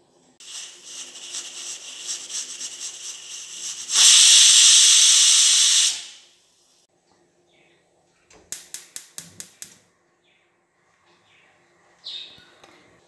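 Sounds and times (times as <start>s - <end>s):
pressure cooker whistling: 0.4s - 6.3s
sputtering steam hiss: 0.4s - 6.3s.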